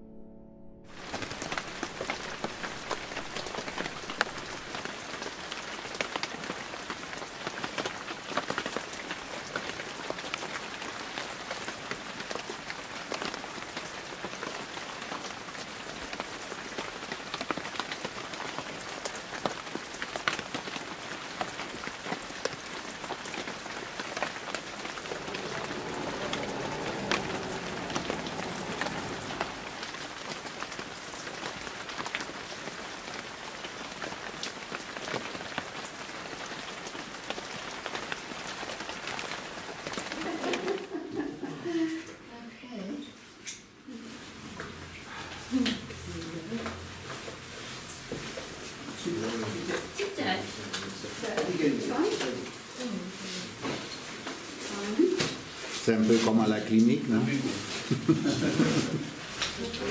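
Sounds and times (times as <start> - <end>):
low hum: 0.0 - 4.6, 24.2 - 30.4
rain falling on pavement: 0.9 - 59.9.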